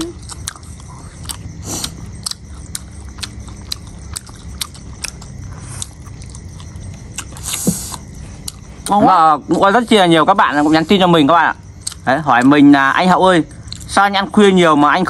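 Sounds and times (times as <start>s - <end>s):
wet chewing and slurping: 0.0s - 9.0s
low steady hum: 0.0s - 15.0s.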